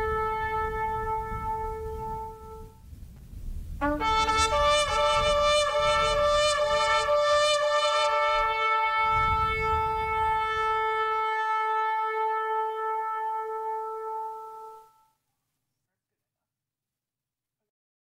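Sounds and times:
ram's horn blasts: 0.0s - 2.8s, 3.8s - 15.1s
low rumble: 8.9s - 11.2s.

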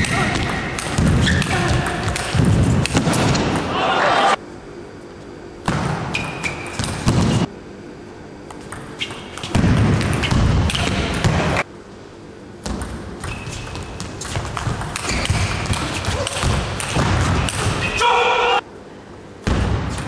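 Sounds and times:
shoe squeaks on floor: 6.1s - 6.8s.

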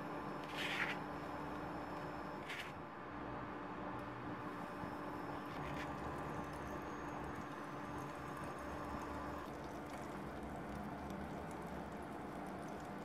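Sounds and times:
steady electrical hum: 0.0s - 13.0s.

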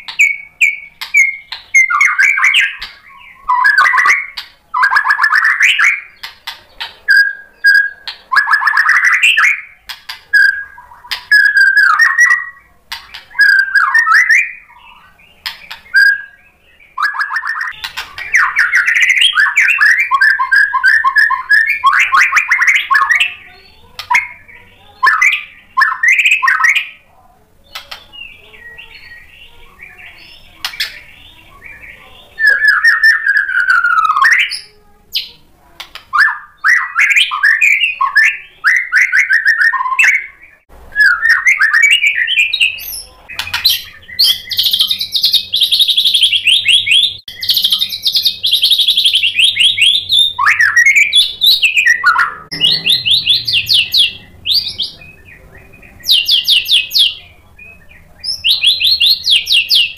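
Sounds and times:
bird singing whistled notes: 0.0s - 27.0s, 27.6s - 35.4s, 36.1s - 59.9s
fast rattling trills: 47.3s - 55.3s.

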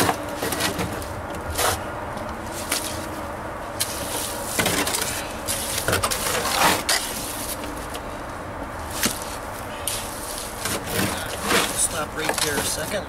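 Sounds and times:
steady background noise: 0.0s - 13.0s
trowel scraping wet mortar: 3.8s - 7.6s, 9.0s - 13.0s.

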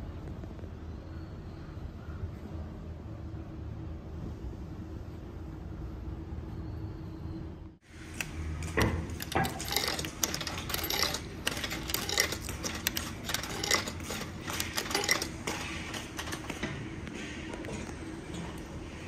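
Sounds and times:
coins clinking in vending machine: 8.7s - 16.6s.

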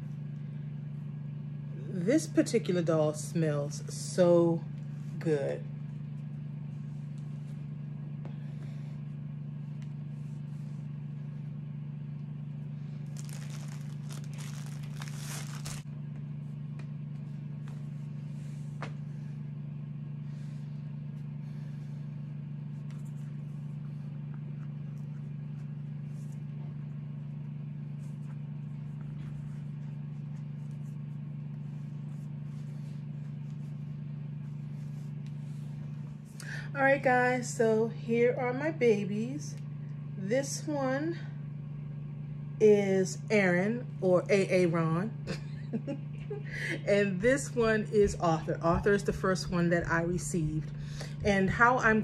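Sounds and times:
steady low hum: 0.0s - 52.0s
doll clothes rustling: 13.0s - 15.9s.

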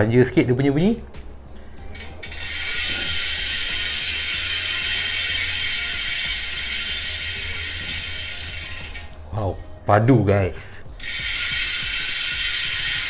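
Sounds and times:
bicycle freehub ratcheting buzz: 1.8s - 9.1s, 11.0s - 13.0s.

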